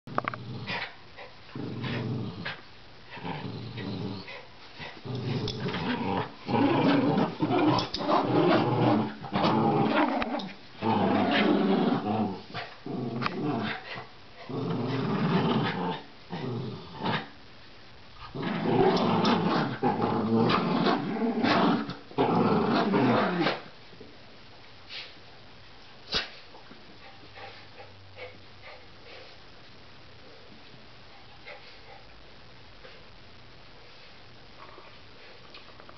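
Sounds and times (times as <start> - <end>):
dogs growling in play: 0.1 - 17.4, 18.2 - 23.7.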